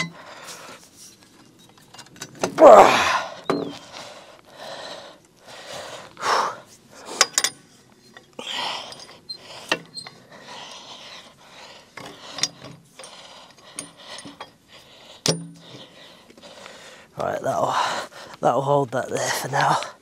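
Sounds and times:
metal clinks and knocks: 3.4s - 3.8s, 7.1s - 10.2s, 11.9s - 15.9s.

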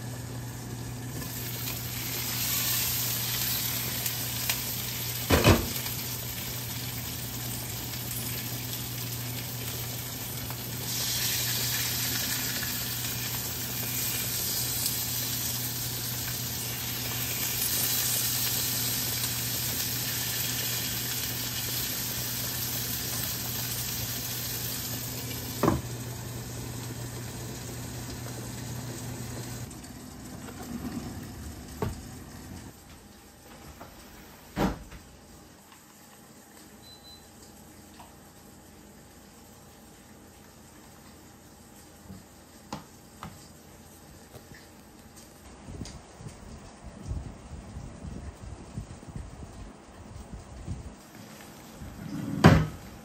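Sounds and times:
food sizzling in a frying pan: 0.0s - 29.7s.

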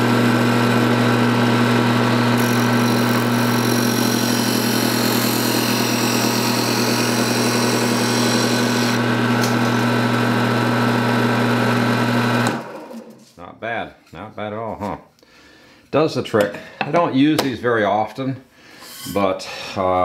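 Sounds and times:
sander motor hum: 0.0s - 13.2s
wood rasping on sanding disc: 2.4s - 9.9s.

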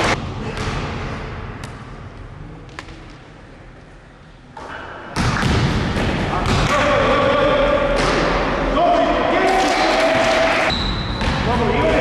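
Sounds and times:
loud game noise in gymnasium: 0.0s - 12.0s.

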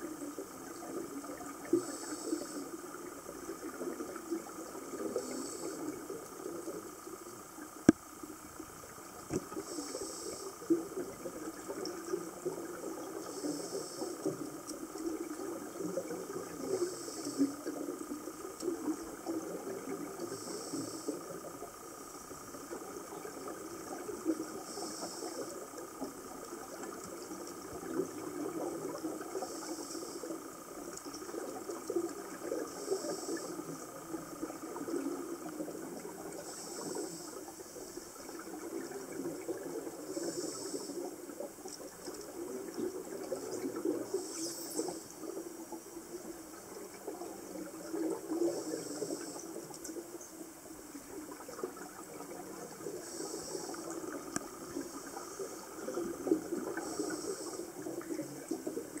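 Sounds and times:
underwater bubbles crackling: 0.0s - 59.0s
scuba regulator hiss: 1.8s - 2.8s, 5.0s - 6.0s, 9.5s - 10.6s, 13.2s - 14.3s, 16.6s - 17.7s, 20.2s - 21.4s, 24.5s - 25.6s, 29.4s - 30.3s, 32.7s - 33.6s, 36.3s - 38.1s, 40.1s - 41.1s, 44.1s - 45.3s, 48.5s - 49.6s, 52.9s - 56.0s, 56.6s - 58.0s.

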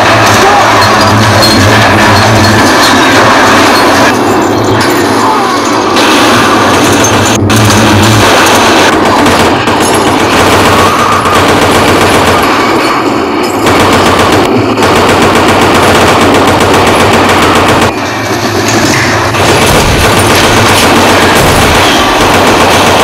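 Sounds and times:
automatic gunfire: 6.0s - 12.9s, 13.6s - 18.0s, 19.0s - 23.0s.

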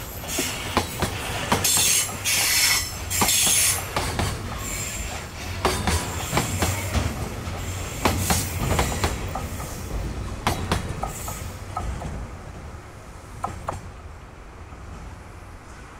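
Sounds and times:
steel wheels clacking on rail joints: 0.0s - 12.3s
train wagons rolling past: 0.0s - 15.9s.

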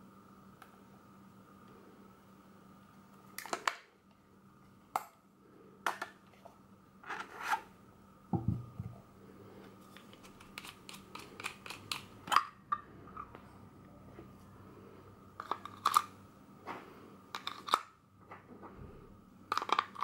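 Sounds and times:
dull knock: 8.4s - 8.9s.

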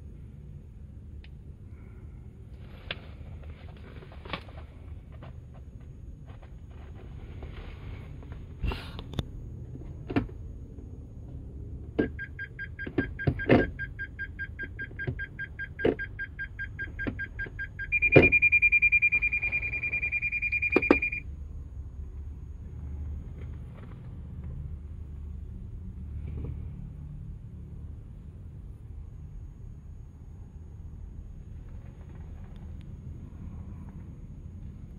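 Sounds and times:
car warning buzzer beeping: 12.0s - 21.2s.

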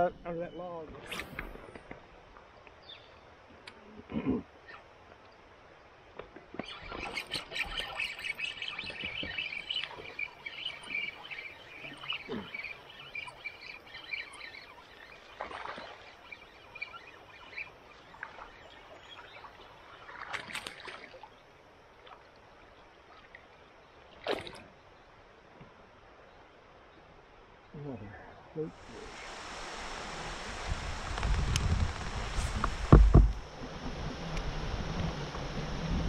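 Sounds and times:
river water splashing: 1.0s - 27.4s, 28.7s - 36.0s
sharp splashes or knocks: 29.2s - 33.5s.

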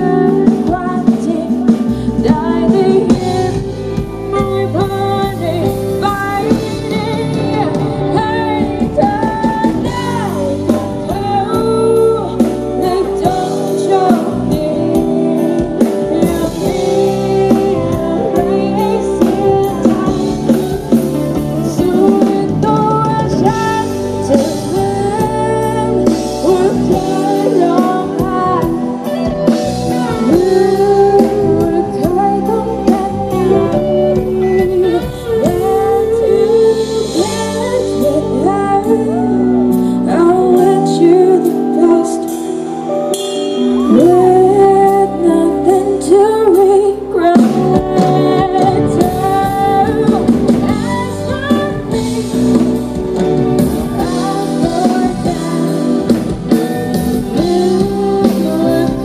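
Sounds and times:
rock band playing: 0.0s - 59.0s
woman singing: 0.0s - 59.0s.

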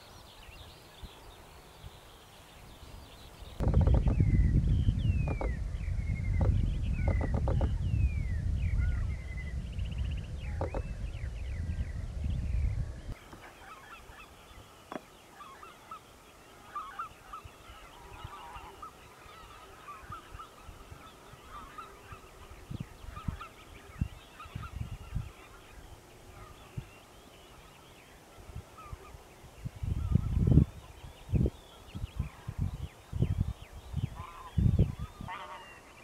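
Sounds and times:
geese honking: 13.3s - 26.7s, 34.2s - 36.0s.

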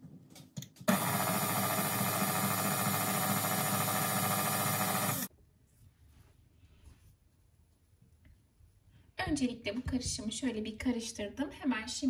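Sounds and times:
stand mixer whipping batter: 0.9s - 5.3s.

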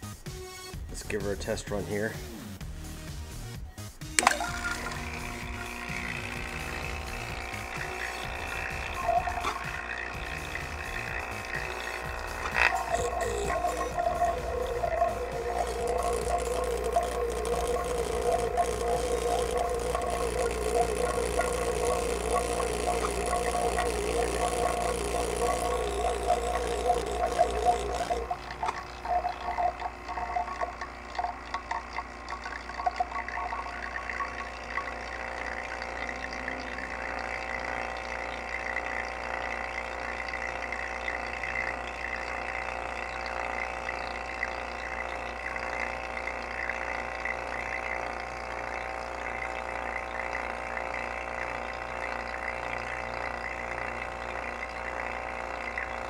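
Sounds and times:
thin high whine: 4.2s - 56.0s
vacuum pump running: 4.2s - 56.0s.

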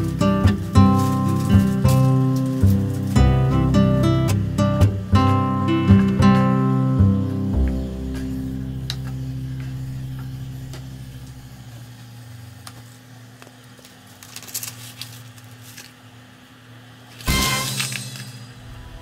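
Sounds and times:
acoustic guitar music: 0.0s - 11.7s.

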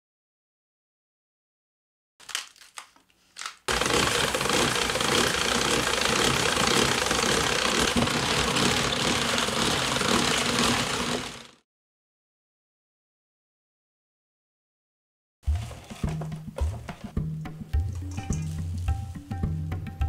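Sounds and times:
cabbage slicer shredding cabbage: 3.7s - 11.6s, 15.5s - 16.4s.

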